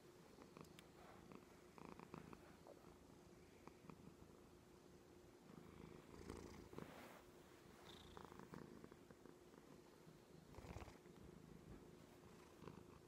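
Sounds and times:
cat purring: 0:00.0 - 0:13.0
rustling: 0:06.6 - 0:08.1.

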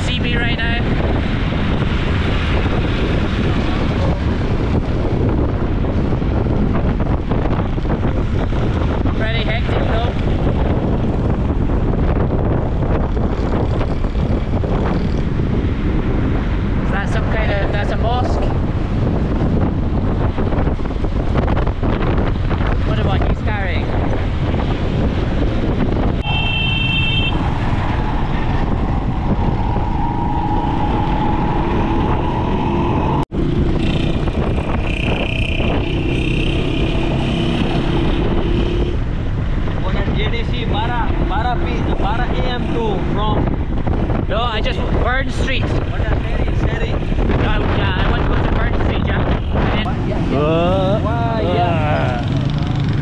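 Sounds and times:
road noise: 0:00.0 - 0:53.0
traffic: 0:00.0 - 0:53.0
wind buffeting microphone: 0:00.0 - 0:53.0
vehicle engine: 0:24.0 - 0:44.2, 0:49.4 - 0:53.0
vehicle horn: 0:26.2 - 0:27.4, 0:34.9 - 0:39.0.

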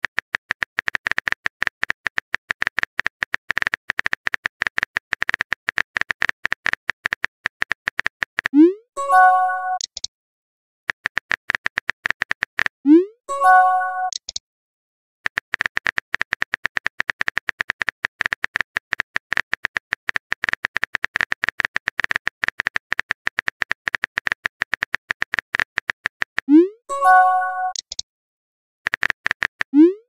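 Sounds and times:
phone keyboard key clicks: 0:14.1 - 0:14.4.

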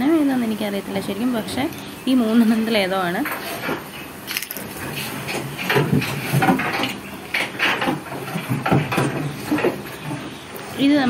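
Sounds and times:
wood knocking and rattling: 0:03.2 - 0:10.5.

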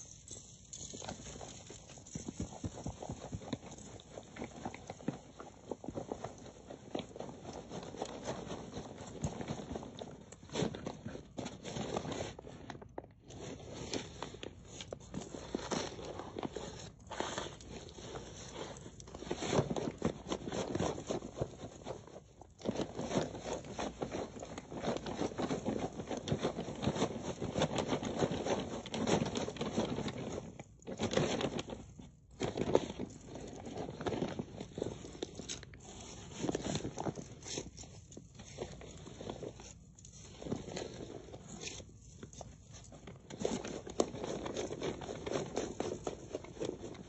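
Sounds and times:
salt and rice grains crunching: 0:00.0 - 0:07.6.

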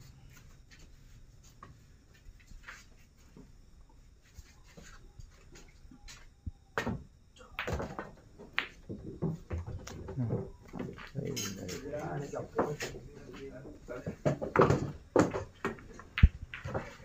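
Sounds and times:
pool balls clacking: 0:06.8 - 0:17.0.

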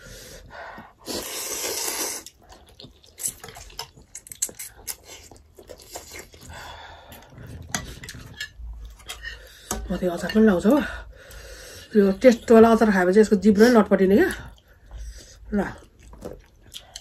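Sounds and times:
noodle slurp: 0:01.0 - 0:06.5
chewing: 0:01.2 - 0:09.8, 0:14.3 - 0:17.0.

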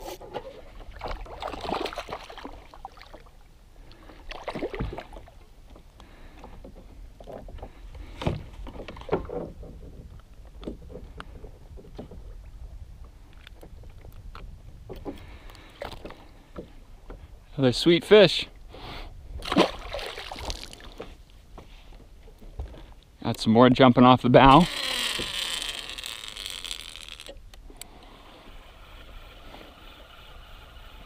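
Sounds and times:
handling noises in a kayak: 0:00.0 - 0:03.2, 0:03.8 - 0:17.5, 0:19.3 - 0:23.5, 0:24.4 - 0:31.0
water splashing: 0:00.4 - 0:05.4, 0:19.4 - 0:21.1.

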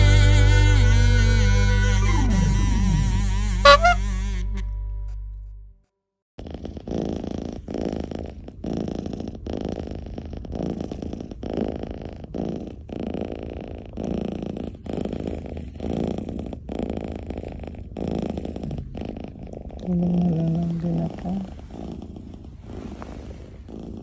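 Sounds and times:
cat purring: 0:06.4 - 0:24.0.

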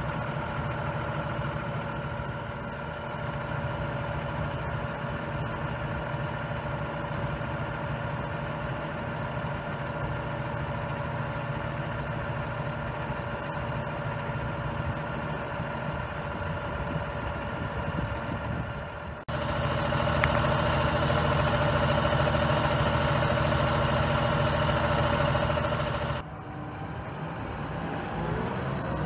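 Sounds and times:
tractor diesel engine: 0:00.0 - 0:29.0.

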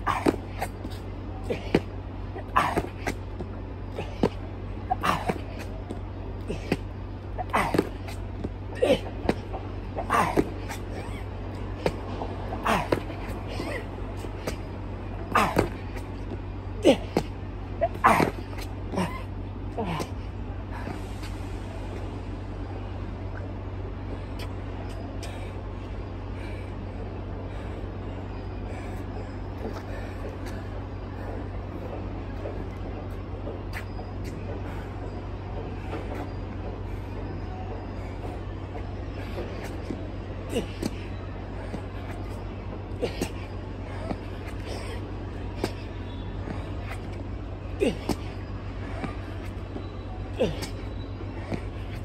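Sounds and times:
hands and shoes tapping asphalt: 0:00.0 - 0:19.2, 0:37.1 - 0:52.0
low rumble of street traffic: 0:00.0 - 0:52.0.

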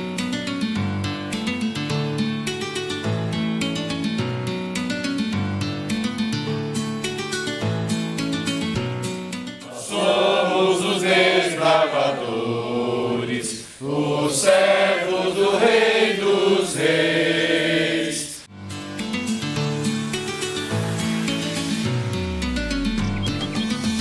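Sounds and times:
instrumental background music: 0:00.0 - 0:10.1, 0:18.5 - 0:24.0
group of people singing: 0:09.6 - 0:18.5.

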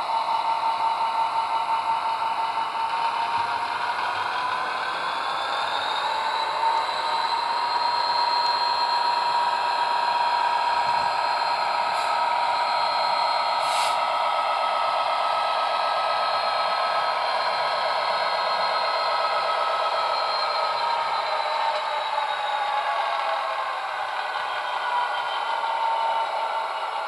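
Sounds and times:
model train diesel engine drone: 0:00.0 - 0:27.0
short hiss: 0:13.6 - 0:14.0.

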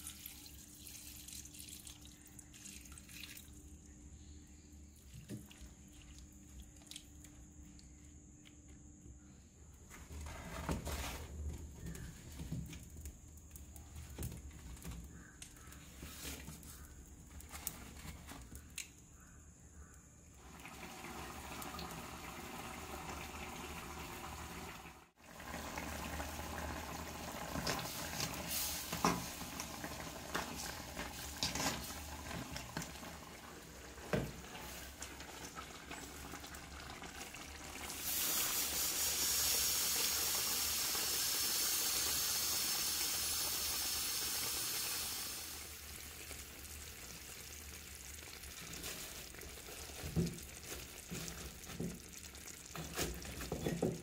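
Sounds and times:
steam hissing: 0:38.0 - 0:45.7
curry bubbling in a pot: 0:45.5 - 0:54.0.

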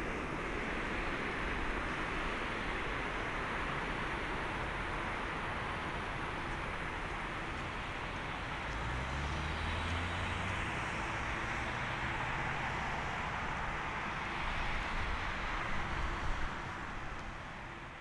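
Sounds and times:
distant jet engines roaring: 0:00.0 - 0:18.0.

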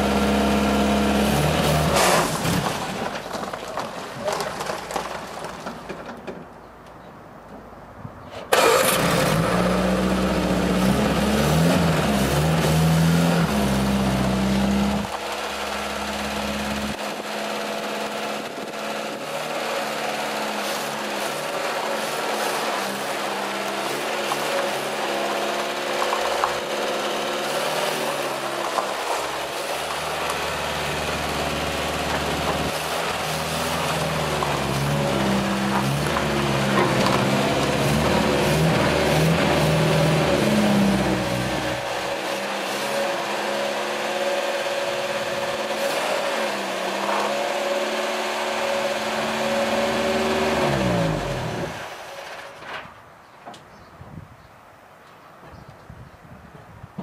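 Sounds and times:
tyres on gravel: 0:00.0 - 0:07.1, 0:08.3 - 0:53.8
car engine revving: 0:08.5 - 0:52.0.

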